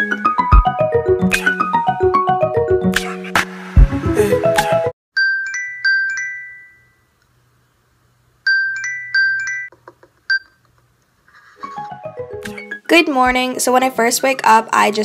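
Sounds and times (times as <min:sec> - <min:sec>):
background music: 0:00.0 - 0:04.9, 0:11.6 - 0:13.2
phone alarm tone ringing: 0:08.5 - 0:09.7.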